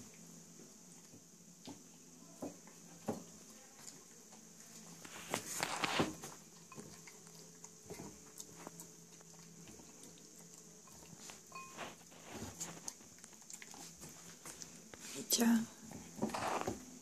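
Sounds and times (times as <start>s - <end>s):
cat chewing wetly: 2.6s - 15.1s.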